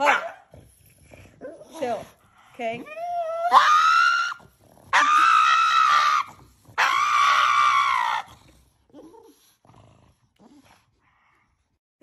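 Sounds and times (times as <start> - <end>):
dog screaming: 3.2 - 8.3.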